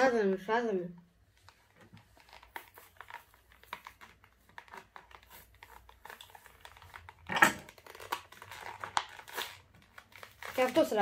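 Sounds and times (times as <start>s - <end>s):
plastic blister pack crinkling: 1.3s - 11.0s
sharp plastic crackle: 1.3s - 11.0s.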